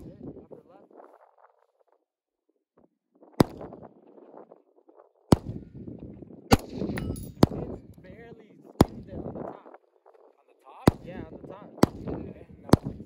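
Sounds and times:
wind rumble on microphone: 0:00.0 - 0:01.8, 0:03.2 - 0:13.0
rifle shots cracking: 0:03.4 - 0:03.8, 0:06.5 - 0:07.8, 0:08.8 - 0:09.3, 0:11.8 - 0:13.0.

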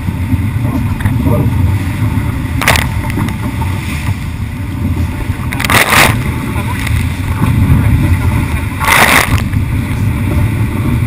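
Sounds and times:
water rushing past hull: 0:00.0 - 0:11.0
wind buffeting microphone: 0:00.0 - 0:11.0.

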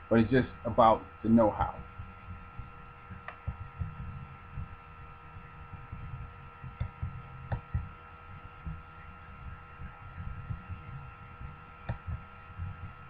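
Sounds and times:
electrical hum: 0:00.0 - 0:13.0
high whining tones: 0:00.0 - 0:13.0
low rumble: 0:01.7 - 0:11.5.

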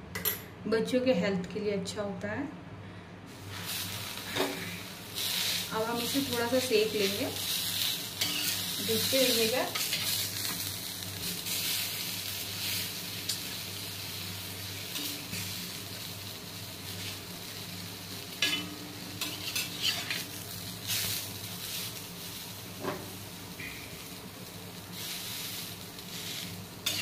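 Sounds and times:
sandwich sizzling in pan: 0:03.3 - 0:27.0
metal spatula scraping pan: 0:08.2 - 0:08.6, 0:18.4 - 0:20.2.

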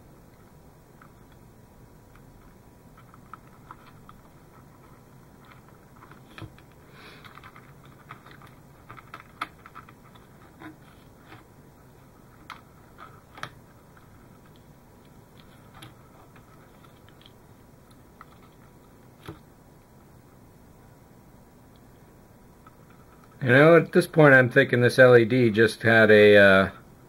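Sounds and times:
small clicks and rustles of wires: 0:00.3 - 0:01.4, 0:02.0 - 0:19.5, 0:21.7 - 0:23.4.

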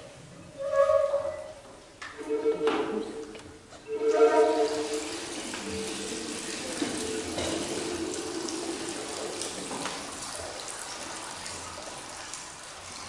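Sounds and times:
shakuhachi low held note: 0:03.9 - 0:06.2.

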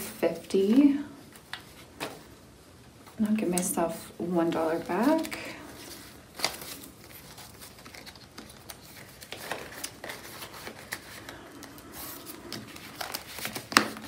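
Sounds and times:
paper and plastic rustling: 0:03.9 - 0:14.0.

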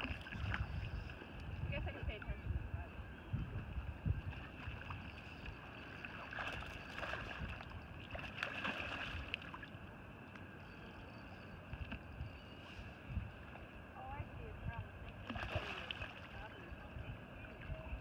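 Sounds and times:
small waves lapping: 0:00.0 - 0:18.0
fish splashing at water surface: 0:08.1 - 0:09.6, 0:15.2 - 0:16.4.

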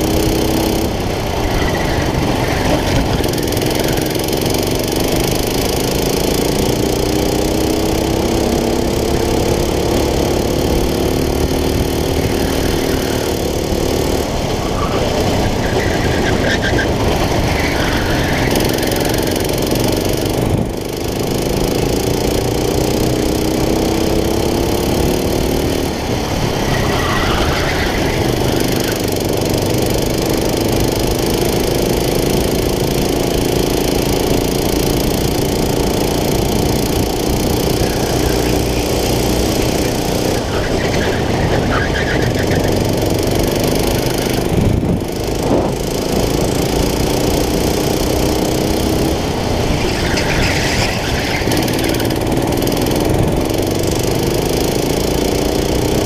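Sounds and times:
go-kart engine revving: 0:00.0 - 0:56.0
wind noise: 0:44.4 - 0:46.3.

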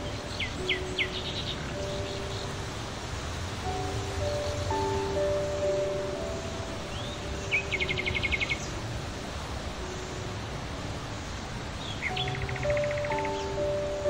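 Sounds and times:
bird chirp: 0:00.0 - 0:02.7, 0:03.7 - 0:08.8, 0:11.2 - 0:14.0
soft background music: 0:00.0 - 0:14.0
steady outdoor hiss: 0:00.0 - 0:14.0
bird trilling: 0:12.0 - 0:14.0.

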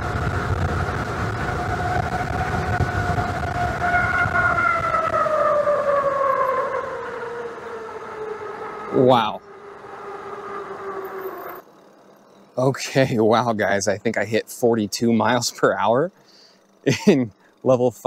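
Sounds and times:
low rumble: 0:00.0 - 0:06.0
electric motor whining: 0:00.0 - 0:12.2.

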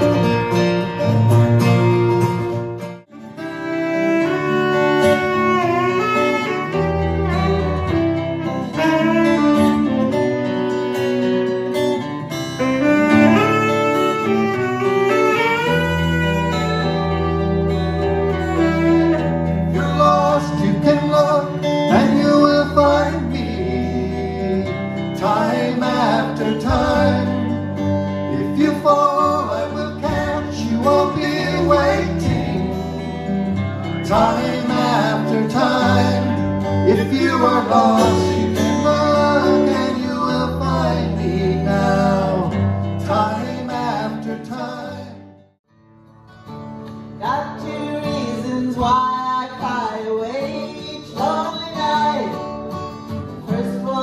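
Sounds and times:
acoustic guitar strumming: 0:00.0 - 0:54.0
man singing: 0:18.8 - 0:33.2, 0:34.0 - 0:45.4, 0:47.2 - 0:52.6, 0:53.3 - 0:54.0.

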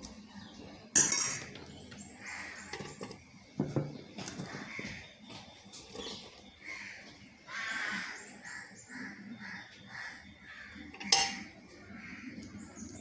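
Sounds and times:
metal bowls clinking: 0:00.9 - 0:01.8, 0:02.6 - 0:04.5, 0:10.9 - 0:11.6.

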